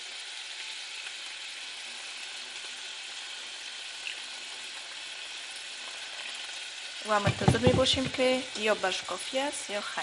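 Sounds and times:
sizzling in a pot: 0.0s - 10.0s
water pouring: 3.9s - 9.9s.

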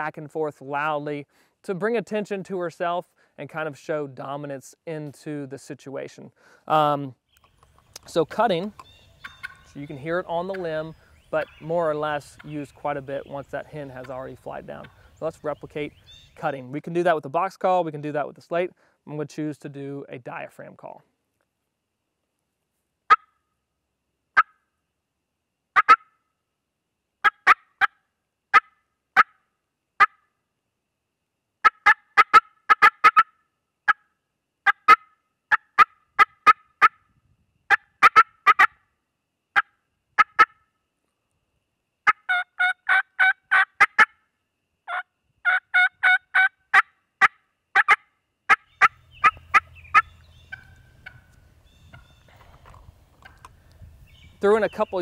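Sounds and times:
turkey call cuts and yelps: 8.8s - 9.7s, 24.4s - 24.6s, 25.8s - 26.1s, 27.2s - 29.4s, 31.6s - 34.0s, 34.6s - 37.0s, 37.7s - 38.8s, 42.1s - 44.2s, 44.9s - 53.6s.

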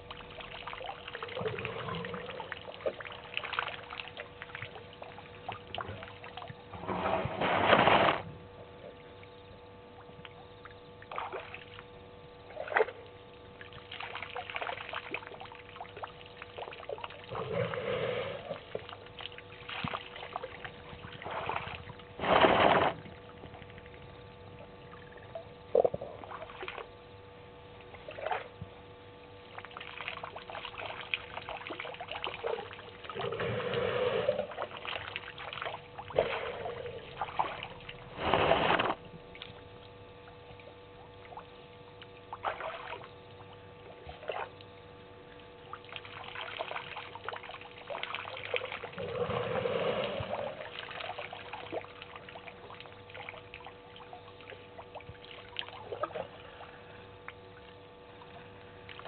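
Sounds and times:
elephant squirting water: 21.1s - 23.2s, 32.2s - 35.4s, 36.1s - 39.0s, 48.0s - 51.6s.

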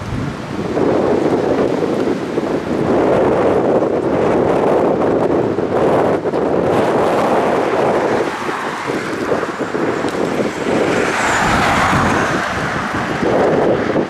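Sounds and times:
wind buffeting microphone: 0.0s - 14.0s
car passing by: 6.7s - 14.0s.

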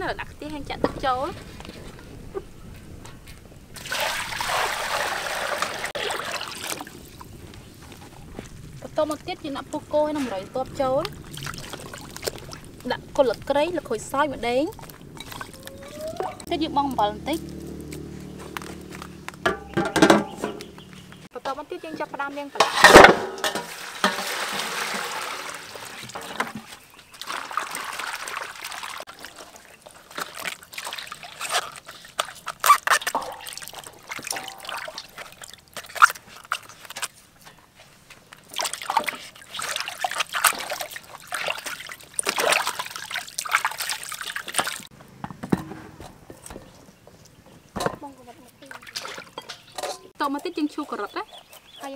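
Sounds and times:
water poured into steel basin: 3.8s - 7.0s, 23.4s - 26.3s, 33.0s - 36.6s
hands sloshing and rinsing vegetables: 3.8s - 21.2s, 22.2s - 44.9s, 48.0s - 51.9s
sharp knocks: 19.4s - 20.8s.

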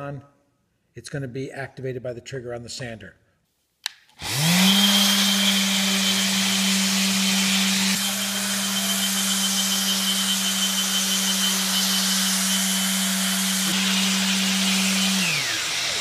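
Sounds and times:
dust extractor running: 4.2s - 16.0s
orbital sander on wood: 4.2s - 16.0s.

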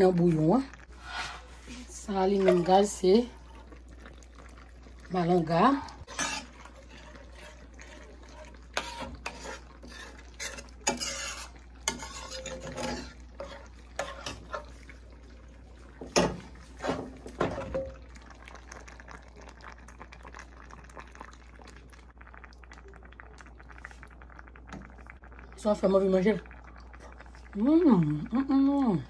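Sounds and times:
metal spoon scraping a pan: 0.9s - 2.9s, 6.0s - 14.8s.

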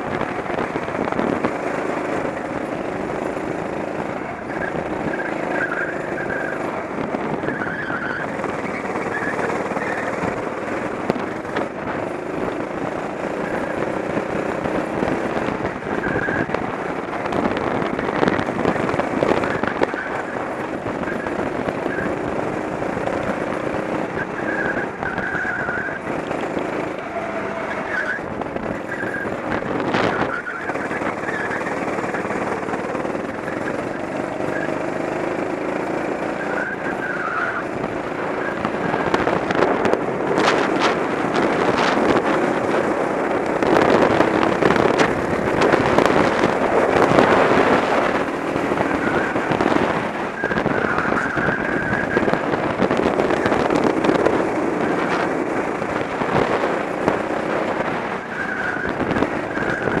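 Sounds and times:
go-kart engine running: 0.0s - 60.0s.

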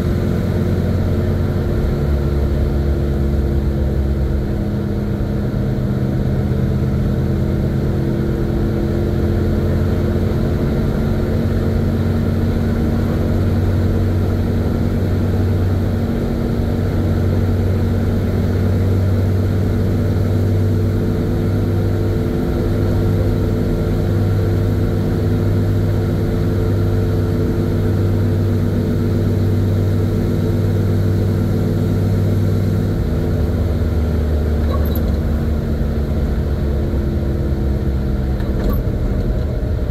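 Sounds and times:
truck engine running: 0.0s - 39.9s
road noise: 29.2s - 39.9s.

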